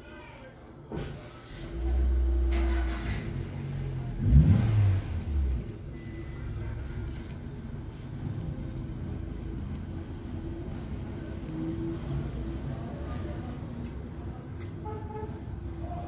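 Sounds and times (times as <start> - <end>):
engine running and revving: 1.5 - 13.2.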